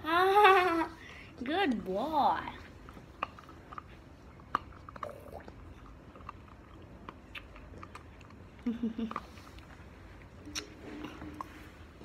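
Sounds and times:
dog chewing crunchy treat: 2.5s - 12.0s.

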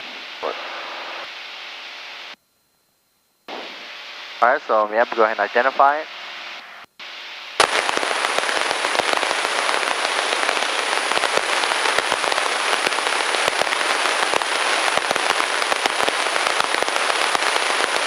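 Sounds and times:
crackling radio static: 0.0s - 2.4s, 3.5s - 18.0s
thin steady high whine: 0.0s - 18.0s.

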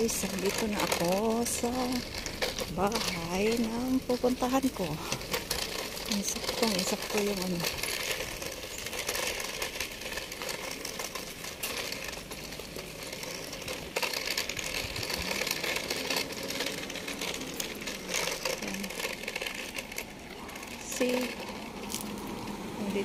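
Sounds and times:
footsteps on pavement: 0.0s - 23.0s.

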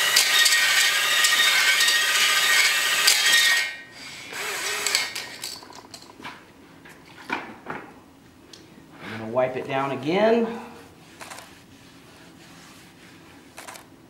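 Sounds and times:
drill grinding hone in cylinder: 0.0s - 5.3s.

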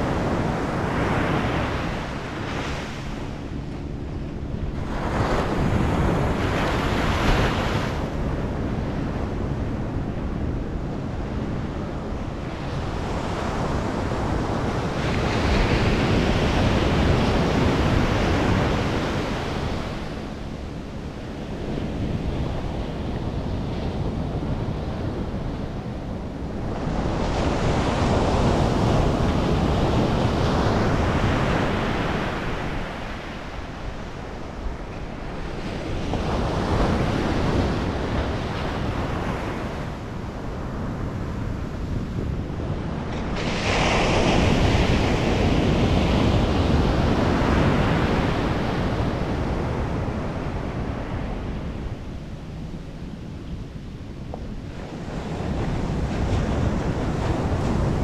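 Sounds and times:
wind buffeting microphone: 0.0s - 58.0s
ocean surf breaking: 26.5s - 52.2s.

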